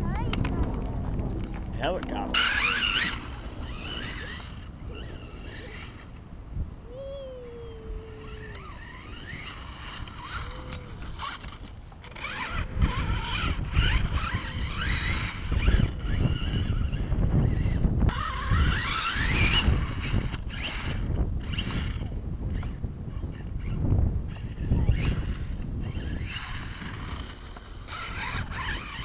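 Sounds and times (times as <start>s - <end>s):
low rumble: 0.0s - 5.0s
rc truck motor revving: 0.1s - 6.2s, 7.8s - 29.0s.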